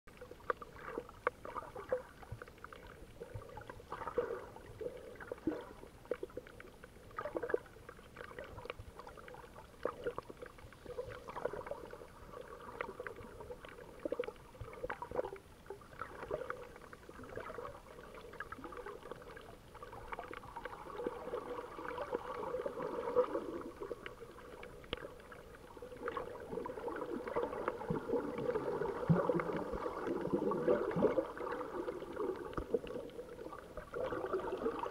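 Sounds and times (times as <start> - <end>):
water gurgling underwater: 0.1 - 34.9
small clicks and pops: 23.6 - 26.6.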